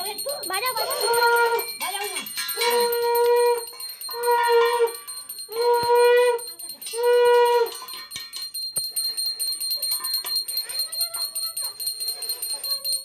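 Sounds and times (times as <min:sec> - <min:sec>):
conch shell blown: 0:02.6 - 0:07.9.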